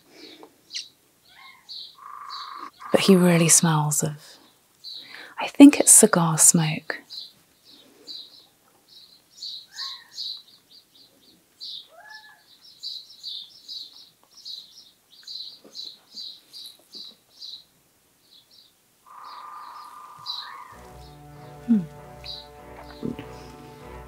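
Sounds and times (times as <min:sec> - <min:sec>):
quiet high-pitched chirping: 0:00.7 - 0:05.2, 0:07.0 - 0:20.8.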